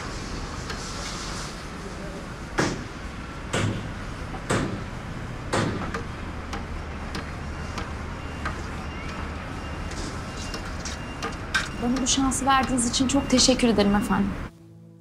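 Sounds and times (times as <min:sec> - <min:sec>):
loud knocks: 0:02.6 - 0:09.3.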